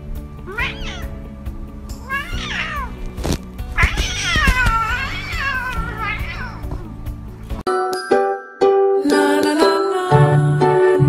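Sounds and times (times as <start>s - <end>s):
background music: 0.0s - 11.0s
cat meowing: 0.5s - 1.2s, 2.0s - 3.1s, 3.7s - 7.0s.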